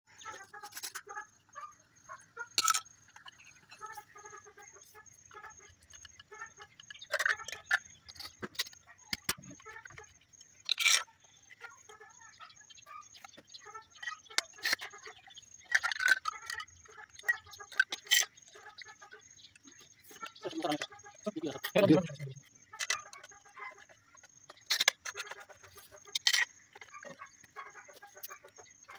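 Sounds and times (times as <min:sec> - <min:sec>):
plastic pump parts clattering: 0:00.5 - 0:01.1, 0:02.5 - 0:04.3, 0:05.3 - 0:11.7, 0:13.2 - 0:18.8, 0:19.7 - 0:27.6.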